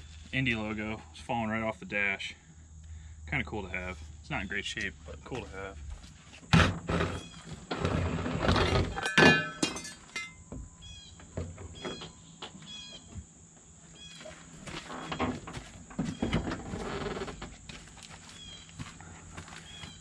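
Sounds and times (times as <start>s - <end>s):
sharp knocks and clunks: 6.4s - 7.2s.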